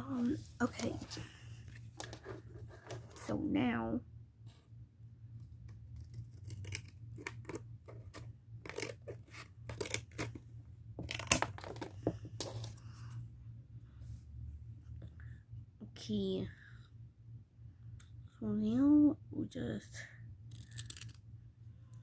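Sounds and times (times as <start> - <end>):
scissors cutting cardboard: 6.0 - 10.4.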